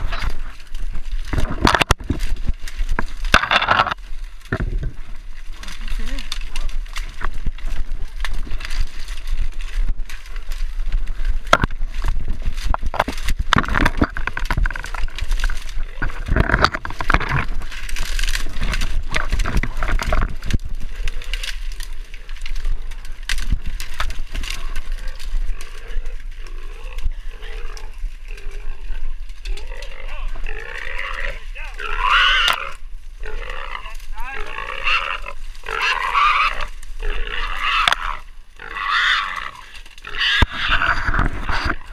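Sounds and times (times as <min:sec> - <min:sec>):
dry brush crackling and snapping: 0:00.0 - 0:41.9
hog squealing: 0:29.7 - 0:41.7.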